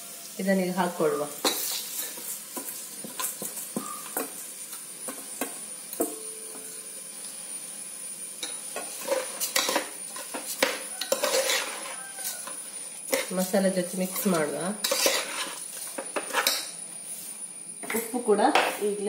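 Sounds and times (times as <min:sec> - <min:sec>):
low sizzle: 0:00.0 - 0:19.0
spatula scraping pressure cooker: 0:08.8 - 0:16.7.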